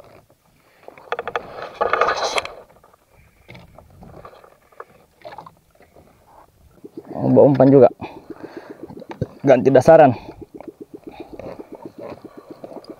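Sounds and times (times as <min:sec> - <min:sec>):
faint clicks and knocks: 0:00.2 - 0:07.8
rapid clicking and rattling: 0:00.9 - 0:05.5.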